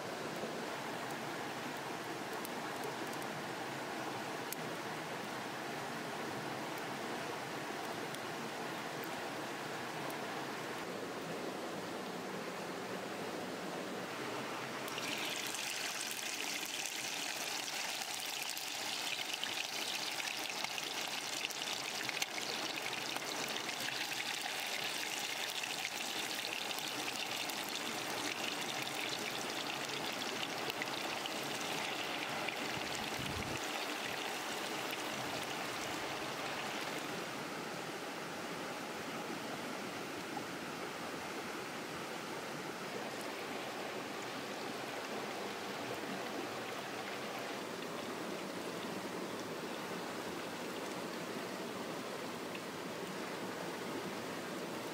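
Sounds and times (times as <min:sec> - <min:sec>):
fish sizzling in hot oil: 0:14.9 - 0:36.9.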